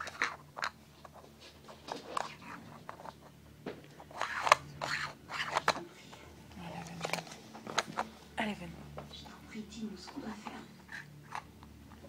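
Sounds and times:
plastic lids scraping on wood: 0.0s - 5.8s.

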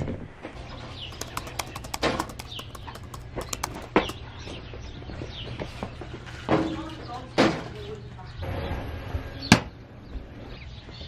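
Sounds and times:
bird chirps: 0.7s - 5.7s.

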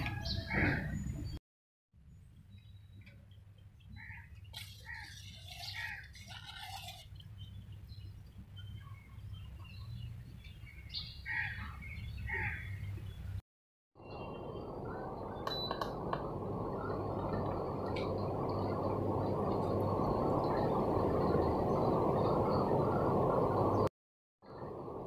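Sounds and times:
birds chirping: 0.0s - 1.4s, 2.1s - 13.4s
low steady hum: 14.1s - 23.9s.

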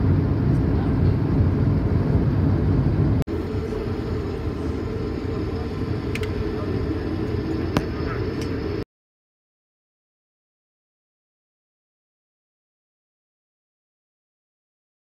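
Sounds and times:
airplane cabin rumble: 0.0s - 8.8s.

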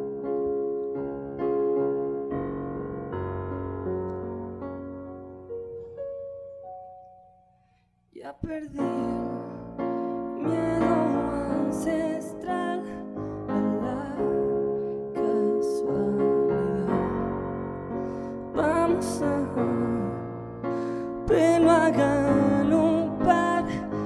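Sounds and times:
electric piano chords: 0.0s - 7.8s, 8.4s - 24.0s
person singing: 8.2s - 17.4s, 18.4s - 24.0s.

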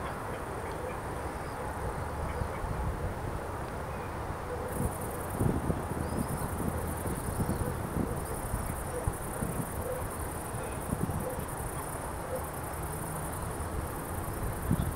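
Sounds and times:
crickets trilling: 4.7s - 14.9s.

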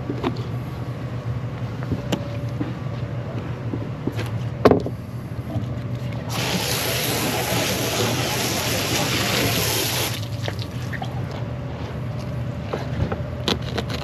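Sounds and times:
steady low hum: 0.0s - 14.0s
running water splashing: 6.3s - 11.0s.

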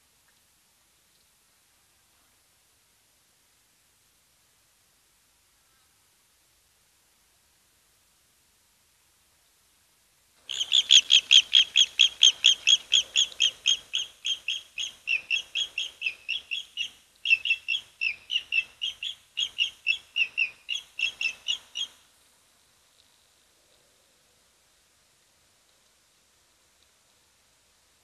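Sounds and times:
bird chirping rapidly: 10.5s - 21.9s.

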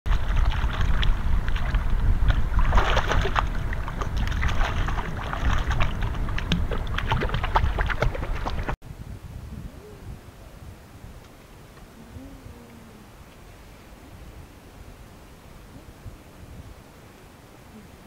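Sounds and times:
water splashing and sloshing: 0.1s - 8.8s
steady low rumble: 0.1s - 18.0s.

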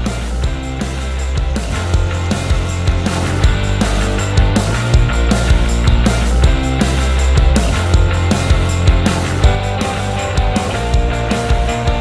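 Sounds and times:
rock music: 0.0s - 12.0s.

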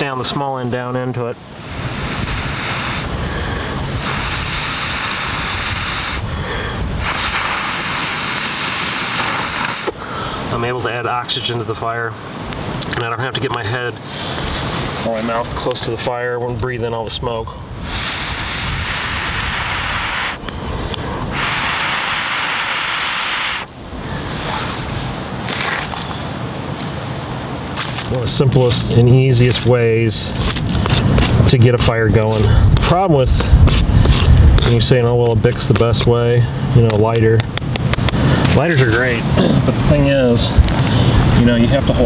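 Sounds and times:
airy blowing through a tube: 1.6s - 10.2s, 17.8s - 25.2s.

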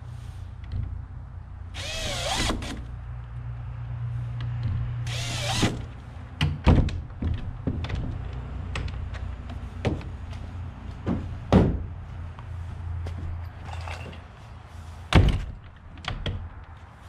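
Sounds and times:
wooden door knocks and thuds: 6.4s - 8.2s, 11.0s - 11.9s, 15.1s - 16.4s.

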